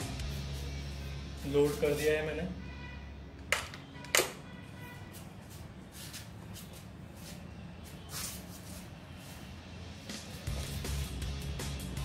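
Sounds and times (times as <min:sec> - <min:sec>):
soft rustle: 0:05.0 - 0:09.6.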